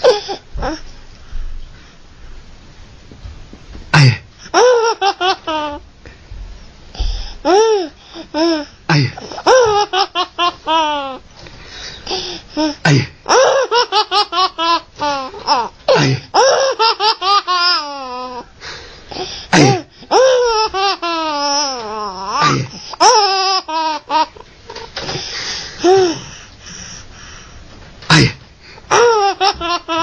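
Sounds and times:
baby laughing: 4.5 - 5.8, 7.4 - 11.2, 12.2 - 18.5, 19.6 - 25.0, 28.9 - 30.0.

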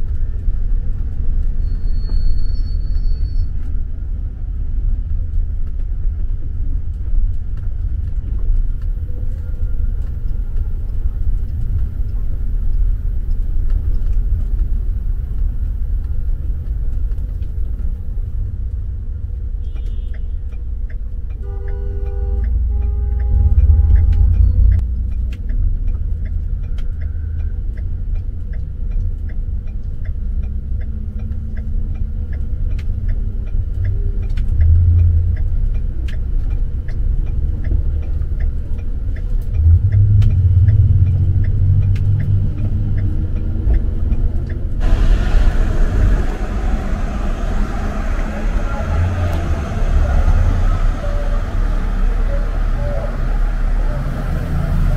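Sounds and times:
city street traffic rumble: 0.0 - 54.9
vehicle horn: 19.6 - 20.4, 21.4 - 24.3.

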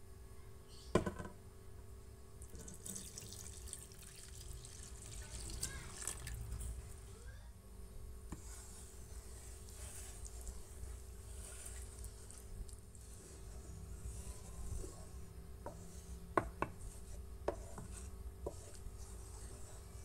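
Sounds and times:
knock: 1.0 - 1.4
water pouring and splashing: 2.4 - 6.5.

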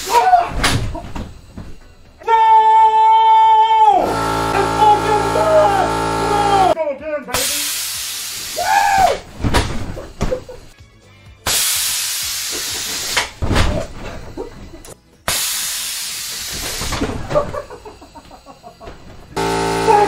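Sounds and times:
compressed air hissing: 7.4 - 10.8, 11.5 - 13.4, 15.3 - 18.4.

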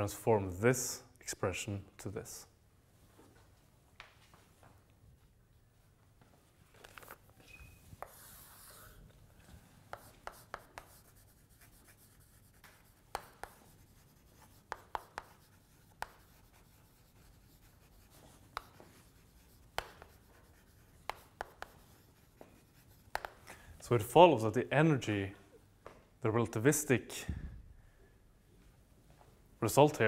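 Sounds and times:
chalk writing on a blackboard: 7.8 - 9.0, 9.8 - 23.4.

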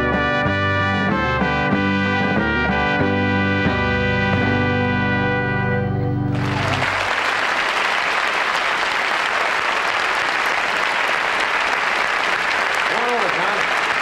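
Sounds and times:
band holding a chord: 0.0 - 7.0
audience applauding: 6.3 - 14.0.

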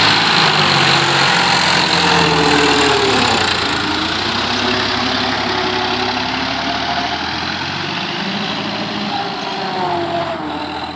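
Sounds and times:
tractor diesel engine running: 0.0 - 10.9.

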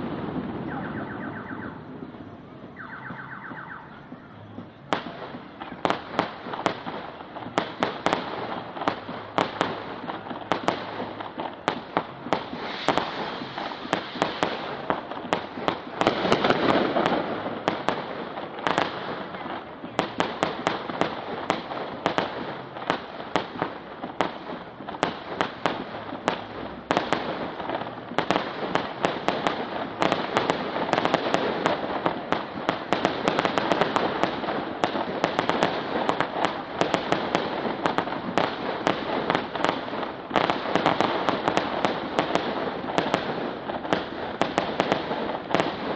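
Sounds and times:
fireworks bangs and crackles: 0.0 - 45.9
rushing hiss: 12.5 - 14.9.

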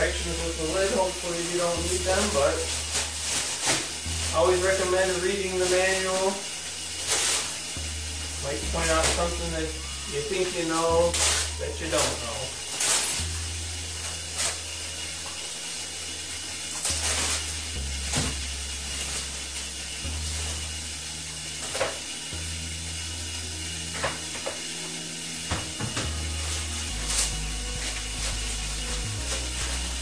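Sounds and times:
plastic wrapping crinkling: 0.0 - 22.3, 23.5 - 30.0
water filling toilet tank: 0.0 - 30.0.

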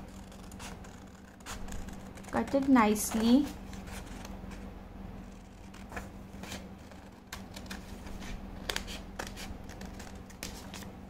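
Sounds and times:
faint steady hum: 0.0 - 11.0
paper sheets rustling: 5.7 - 11.0.

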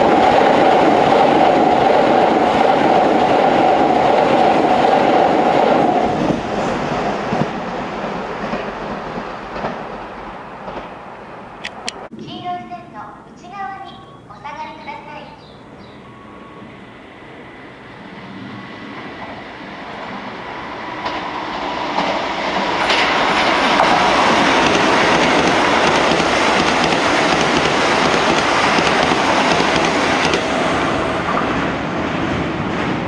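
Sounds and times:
electric train passing: 0.0 - 33.0.

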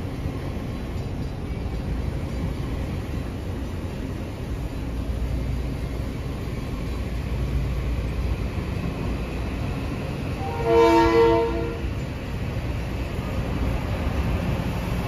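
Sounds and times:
train rolling rumble: 0.0 - 15.0
train horn: 10.4 - 12.0.

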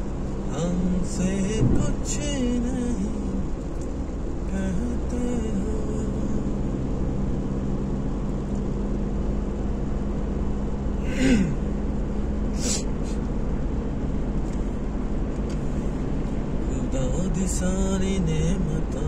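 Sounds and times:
car engine and tyre noise: 0.0 - 19.0
brief hiss: 12.6 - 13.2.

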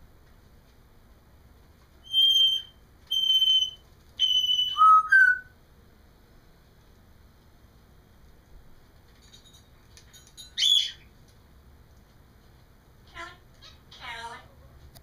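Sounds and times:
parrot whistling: 2.0 - 5.5, 10.6 - 11.1.

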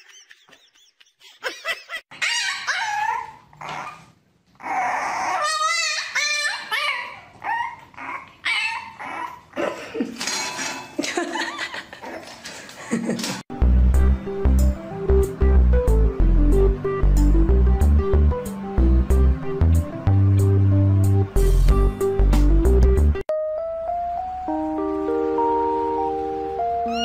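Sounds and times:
dogs whining and yipping: 2.1 - 9.6, 26.8 - 27.0.

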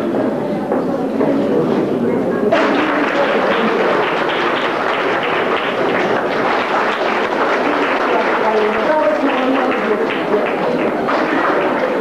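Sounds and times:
audience applauding: 2.5 - 12.0
voices: 7.3 - 12.0.

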